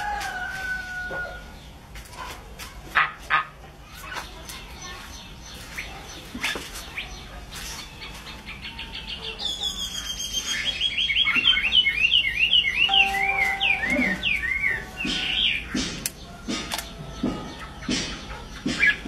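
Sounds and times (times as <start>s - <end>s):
songbird whistling song: 9.4s - 15.7s.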